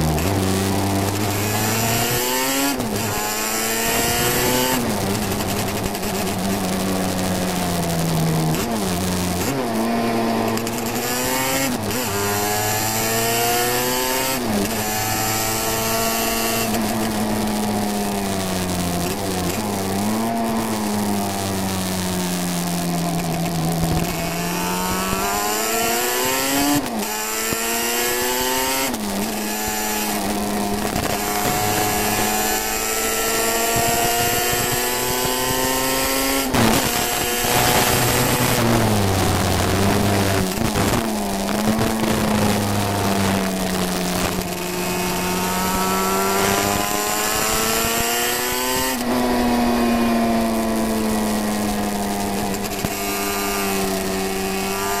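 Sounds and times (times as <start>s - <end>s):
motorcycle engine accelerating: 0.0s - 55.0s
microphone crackling: 36.4s - 47.9s.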